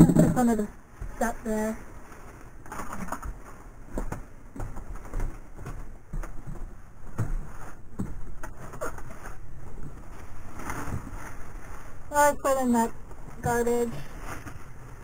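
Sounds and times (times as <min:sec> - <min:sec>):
plastic bag rustling: 0:00.0 - 0:15.0
footsteps on wood: 0:03.2 - 0:08.5.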